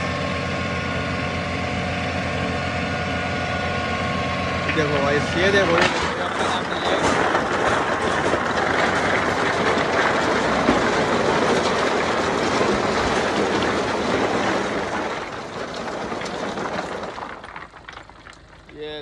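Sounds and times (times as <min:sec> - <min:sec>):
crushed stone sliding and rattling: 0:04.6 - 0:19.0.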